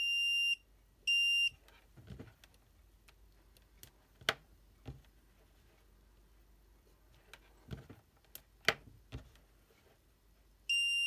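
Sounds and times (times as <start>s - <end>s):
continuity tester beeping: 10.7s - 11.0s.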